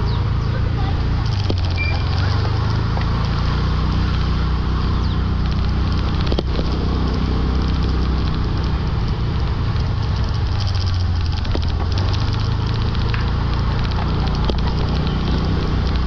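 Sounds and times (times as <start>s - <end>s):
motorbike engine running: 0.0s - 16.0s
wind and road noise: 0.0s - 16.0s.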